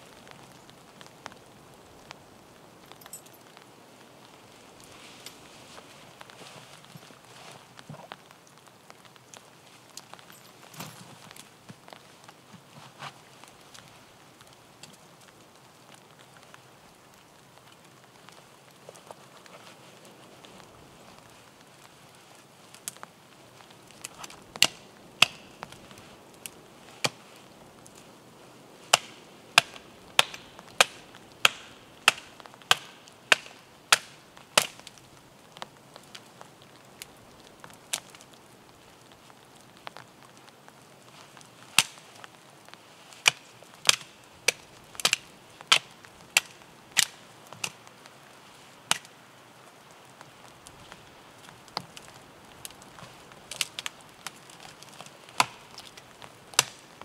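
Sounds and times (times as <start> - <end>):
axe chopping wood: 28.9 - 34.7.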